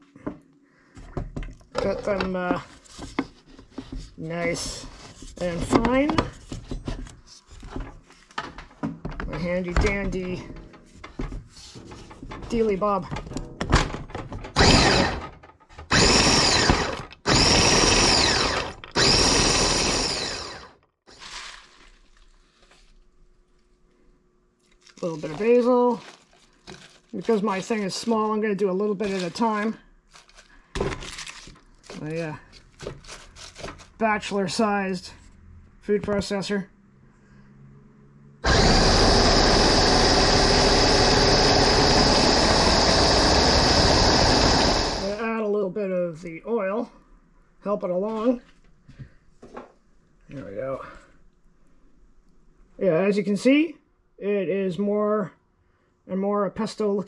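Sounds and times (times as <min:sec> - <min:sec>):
food processor whizzing nuts: 0:14.6 - 0:21.9, 0:38.4 - 0:45.2.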